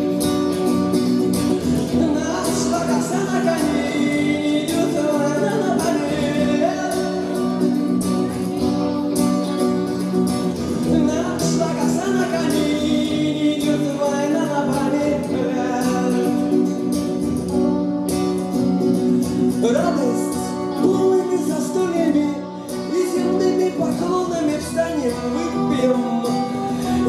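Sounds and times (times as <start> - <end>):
electric guitar playing: 0.0 - 27.0
strummed acoustic-electric guitar: 0.0 - 27.0
man singing: 1.7 - 8.9, 10.6 - 17.2, 19.5 - 27.0.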